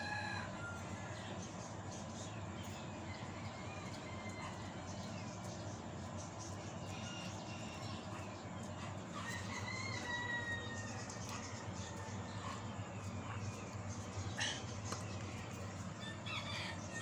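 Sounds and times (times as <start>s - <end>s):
rooster crowing: 0.0s - 1.3s, 3.2s - 5.1s, 9.2s - 11.3s, 16.0s - 17.0s
low background hum: 0.0s - 17.0s.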